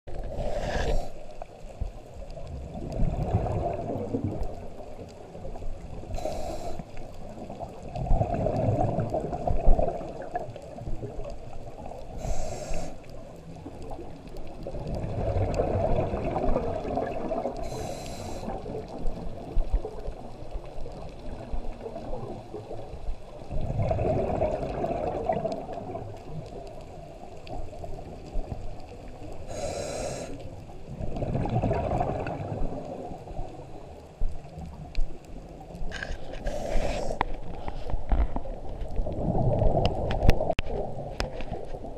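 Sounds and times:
hissing regulator inhale: 0.2 - 1.5, 6.1 - 7.0, 12.2 - 13.1, 17.6 - 18.6, 29.5 - 30.5, 35.9 - 37.9
burbling exhaled bubbles: 2.4 - 6.2, 7.2 - 12.0, 13.6 - 17.8, 18.4 - 27.1, 29.4 - 33.6, 35.8 - 41.9.

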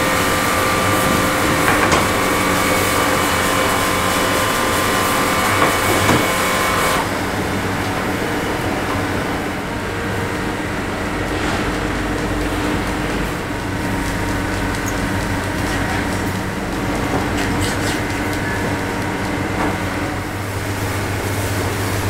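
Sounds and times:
rotisserie motor humming: 0.0 - 22.0
racks clicking: 4.0 - 7.0.

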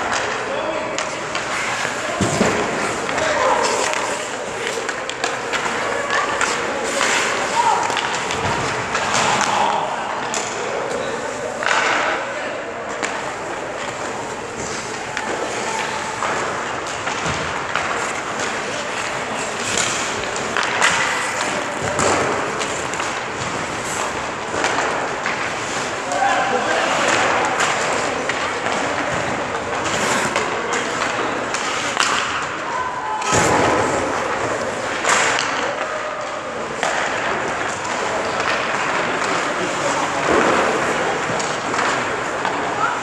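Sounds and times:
skate blades scraping ice: 1.0 - 9.7, 13.0 - 32.5
stick and puck knocks: 14.6 - 25.9.

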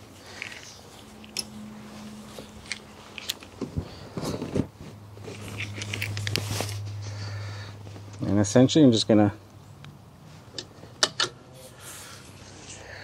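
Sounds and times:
bungee cord hook clicking and scraping: 0.3 - 1.6, 2.4 - 3.5, 5.3 - 6.8.

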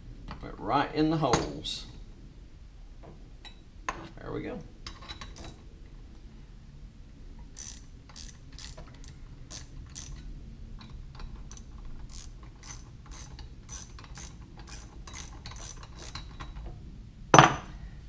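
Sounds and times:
hand ratchet clicking: 7.6 - 10.2, 11.2 - 16.6.

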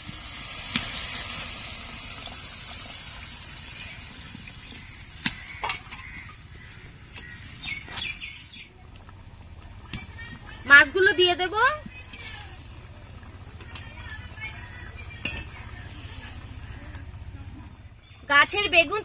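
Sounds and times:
hot pan hissing: 0.0 - 8.6, 10.2 - 13.0.

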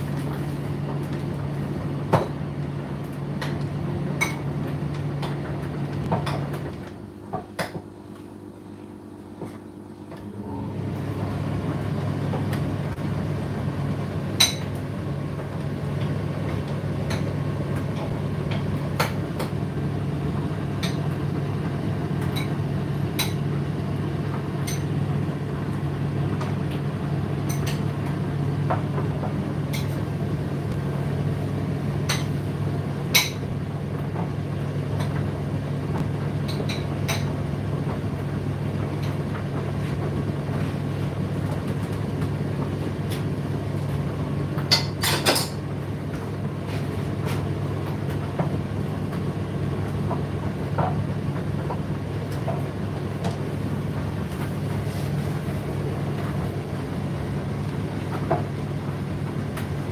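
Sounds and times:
tumble dryer motor and drum hum: 0.0 - 59.9.

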